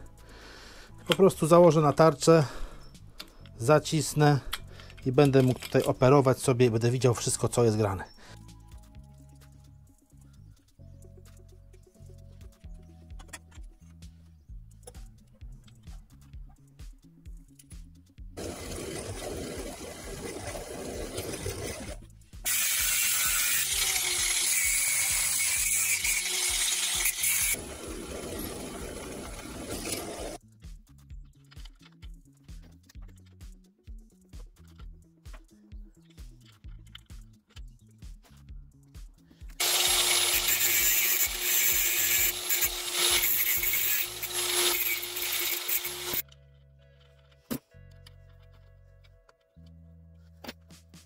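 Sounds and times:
faint background music: 0.0s - 18.4s, 30.4s - 51.0s
angle grinder on metal: 18.4s - 30.4s, 39.6s - 46.2s
rasping of metal work: 18.5s - 27.6s, 39.6s - 46.3s.

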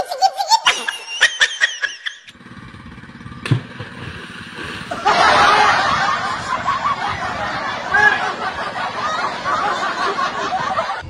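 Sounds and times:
low pulsing rumble: 2.3s - 11.0s
water churning and splashing: 3.3s - 10.0s.

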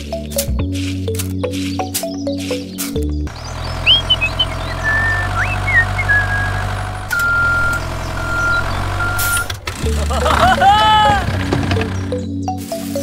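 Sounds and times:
tractor engine running: 3.1s - 12.3s
short high chirps: 3.8s - 6.6s
reversing beeper: 3.8s - 9.6s.

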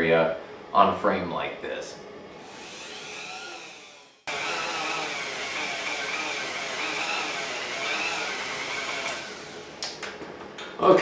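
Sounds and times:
rotary tool high whine: 2.4s - 9.9s.

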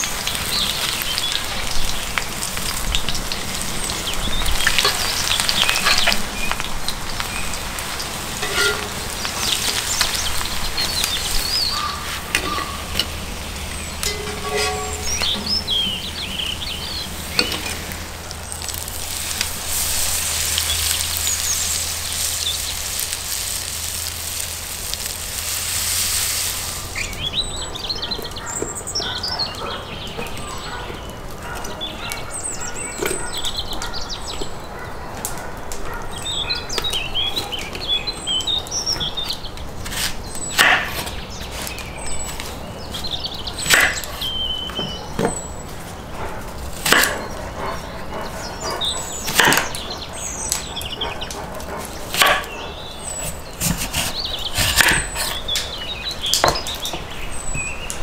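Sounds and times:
small birds chirping: 0.0s - 58.0s
steady hiss with low hum: 15.2s - 27.7s.

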